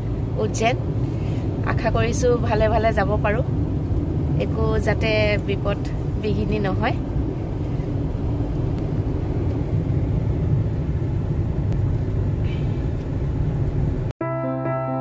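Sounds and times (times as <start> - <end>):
car interior engine and road noise: 0.0 - 14.1.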